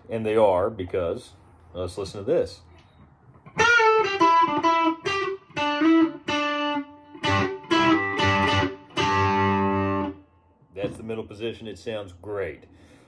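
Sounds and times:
electric guitar notes and chords: 3.4s - 10.3s.

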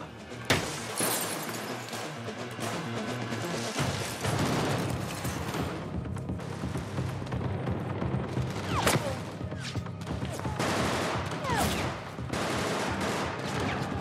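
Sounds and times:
automatic gunfire: 10.5s - 14.0s.

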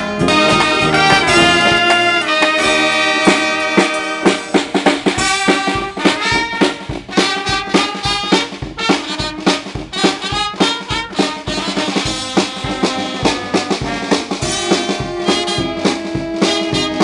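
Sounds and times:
brass band playing: 0.0s - 17.0s
drums and cymbals beat: 0.0s - 17.0s.

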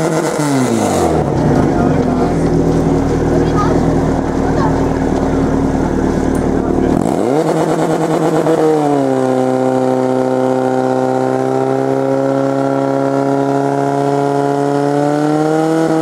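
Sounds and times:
pump engine running at full throttle: 0.8s - 8.1s.

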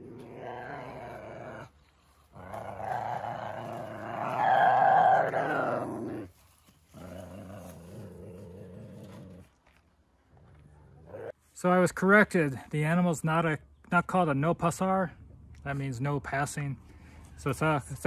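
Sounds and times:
ocelot growling: 0.0s - 6.3s, 6.9s - 9.5s.

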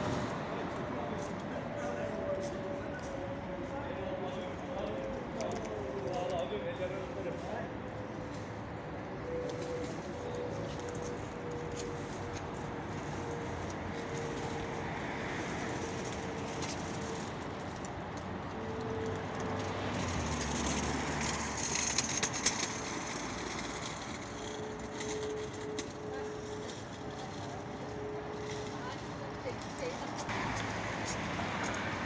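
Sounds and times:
city street traffic: 0.0s - 32.0s
vehicle passing: 18.2s - 32.0s.

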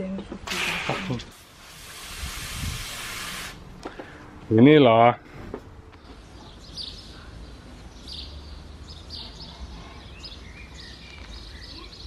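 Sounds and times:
small birds chirping: 5.9s - 12.0s.

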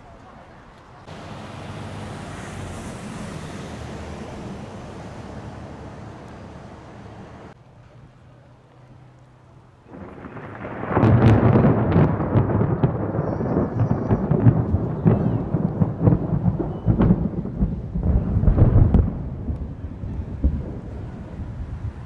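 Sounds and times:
thunder rumbling and cracking: 9.9s - 22.0s.

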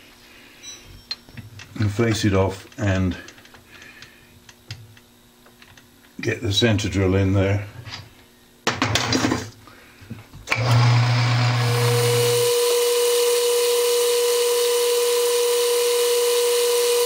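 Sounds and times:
lathe whine: 10.5s - 17.0s
lathe motor hum: 10.6s - 17.0s.

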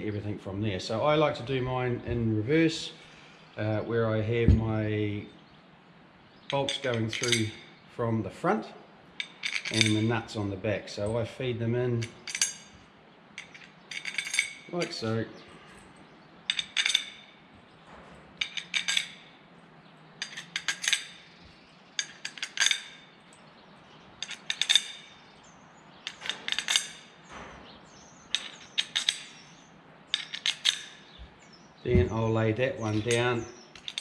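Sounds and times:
metal bolts clinking: 6.4s - 7.8s, 9.1s - 34.0s.

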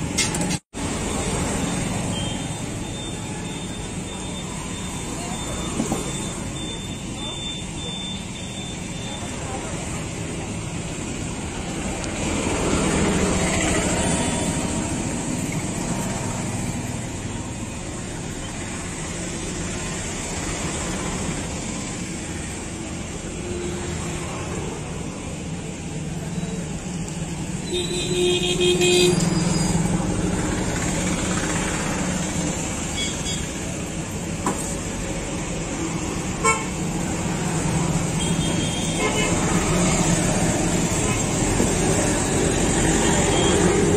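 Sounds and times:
street traffic noise: 0.0s - 43.9s
vehicle horns: 27.6s - 29.8s, 36.4s - 36.8s, 38.1s - 39.6s.

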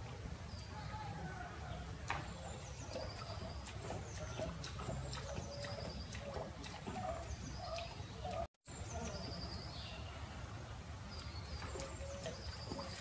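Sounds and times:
small birds chirping: 0.4s - 13.0s
animal lapping water: 2.0s - 8.5s, 11.1s - 13.0s.

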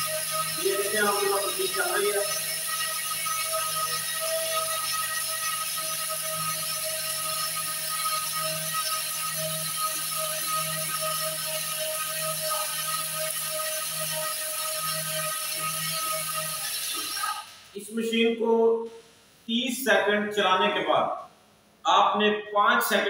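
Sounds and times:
electric spice grinder whining: 0.0s - 17.8s.

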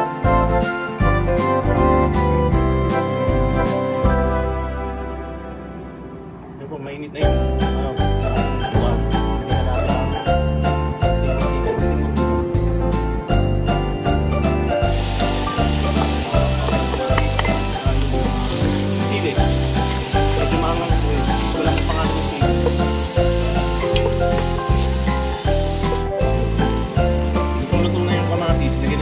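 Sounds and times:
background music with steady beat: 7.2s - 29.0s
vegetables sizzling in hot oil: 14.8s - 29.0s
wooden spoon stirring in pot: 15.1s - 26.1s.

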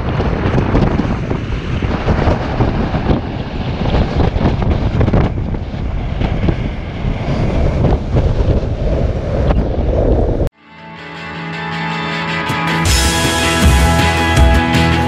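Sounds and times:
wind rumbling on microphone: 0.0s - 10.5s.

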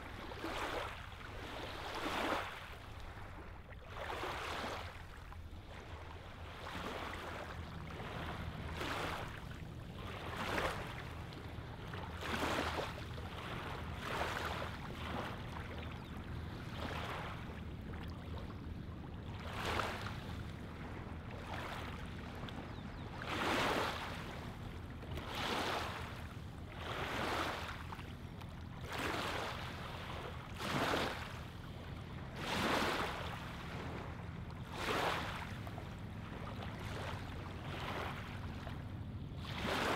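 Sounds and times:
waves lapping on pebbles: 0.1s - 15.6s, 19.4s - 20.4s, 25.2s - 28.0s, 28.8s - 31.4s, 32.4s - 33.7s, 34.6s - 39.9s.

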